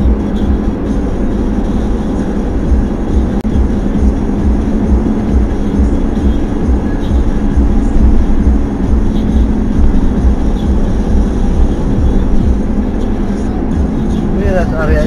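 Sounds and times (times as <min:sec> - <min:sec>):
car driving road rumble: 0:00.0 - 0:15.0.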